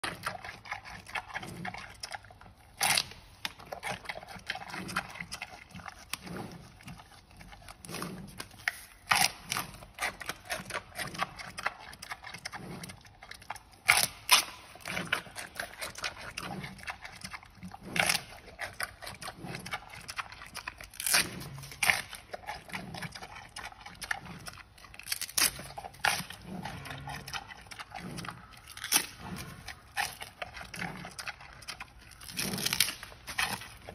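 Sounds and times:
panda chewing bamboo: 0.0 - 33.9
bamboo stalk crunching: 8.4 - 10.7, 20.8 - 22.2, 25.0 - 27.4, 28.7 - 29.4, 32.0 - 33.9.

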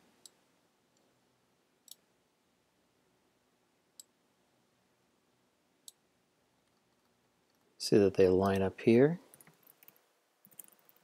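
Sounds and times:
computer mouse clicks: 1.8 - 2.0, 9.3 - 11.0.

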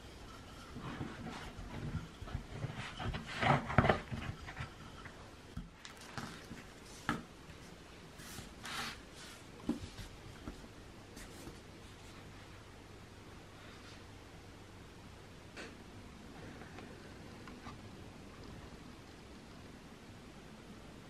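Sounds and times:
pastry and tin rubs and taps: 0.0 - 10.6.

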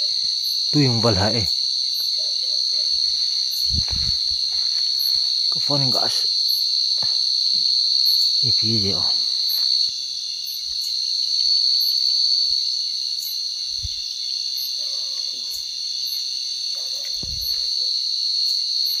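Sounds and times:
insects trilling: 0.0 - 19.0
soft low thumps: 3.7 - 4.6.

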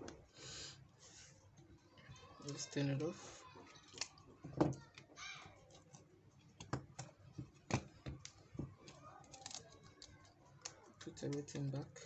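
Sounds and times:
plastic parts clicking and tapping: 3.8 - 11.8.

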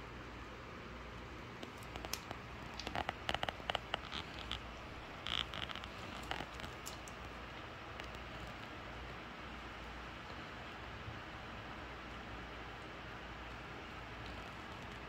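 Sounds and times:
faint steady hiss: 0.0 - 15.0
dog crunching a bone: 1.6 - 8.6.

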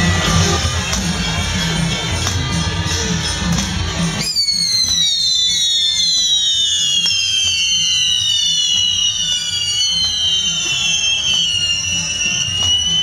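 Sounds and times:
firework fountains whistling: 0.0 - 13.0
firework pops: 3.5 - 13.0.

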